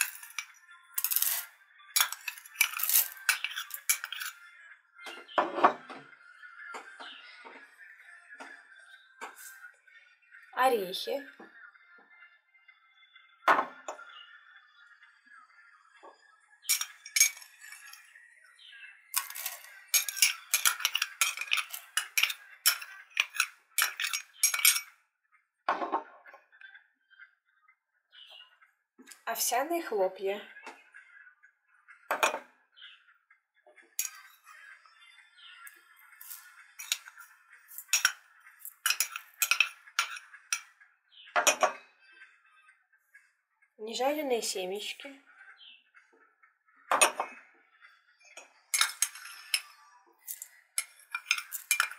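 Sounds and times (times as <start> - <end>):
metal spoon clinking on china cup: 0.0 - 4.4, 16.7 - 18.0, 19.2 - 24.9, 36.2 - 37.1, 37.7 - 40.6, 48.8 - 49.7, 50.3 - 51.9.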